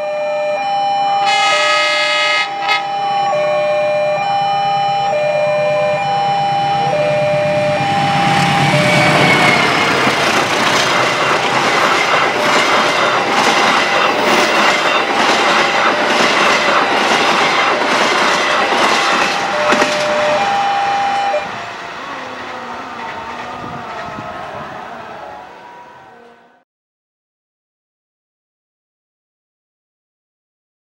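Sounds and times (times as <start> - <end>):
train horn: 1.2 - 10.3, 17.8 - 26.6
train rumble: 1.2 - 26.6
wheels clacking over rail joints: 6.2 - 25.0.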